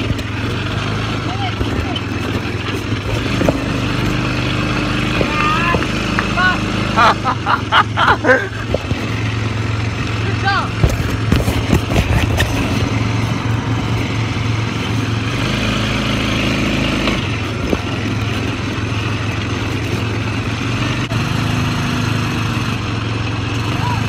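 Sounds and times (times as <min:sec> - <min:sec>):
sharp knocks and rattles: 0:00.0 - 0:04.3, 0:08.5 - 0:15.1, 0:17.0 - 0:20.3
quad bike engine running: 0:00.0 - 0:24.0.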